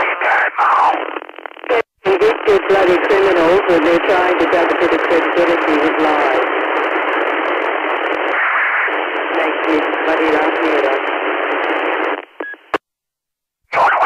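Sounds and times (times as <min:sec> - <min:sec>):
faint voice over radio: 0:00.0 - 0:01.1, 0:13.7 - 0:14.0
radio click: 0:00.0 - 0:12.8
radio static hiss: 0:00.0 - 0:12.8, 0:13.7 - 0:14.0.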